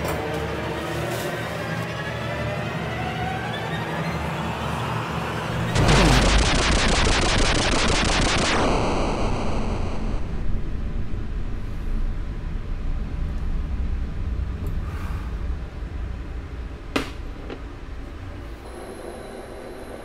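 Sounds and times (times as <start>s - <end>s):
low steady rumble: 5.5s - 18.7s.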